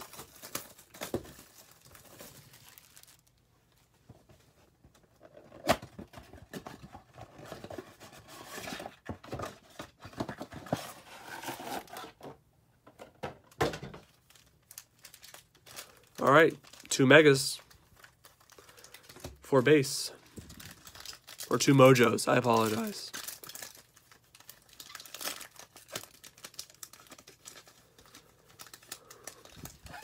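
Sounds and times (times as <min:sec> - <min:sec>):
foil packs rustling and crinkling: 0:00.0 - 0:03.4, 0:14.0 - 0:30.0.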